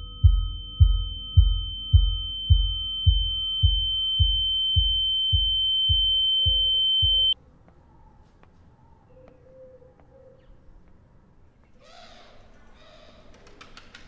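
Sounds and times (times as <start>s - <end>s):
low heartbeat-like thuds: 0.0s - 7.4s
piercing electronic sine tone: 0.0s - 7.4s.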